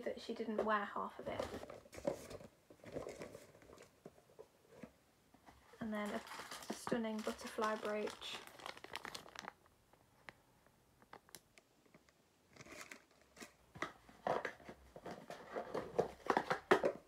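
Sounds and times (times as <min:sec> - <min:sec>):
plastic packets crinkling: 0:01.3 - 0:03.9, 0:05.7 - 0:10.4, 0:11.0 - 0:17.0.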